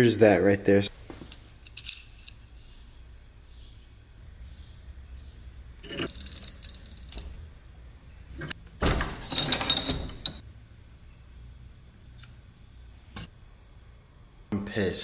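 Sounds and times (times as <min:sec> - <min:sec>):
metal tool clinking and rattling: 0:05.8 - 0:07.4, 0:08.4 - 0:10.4.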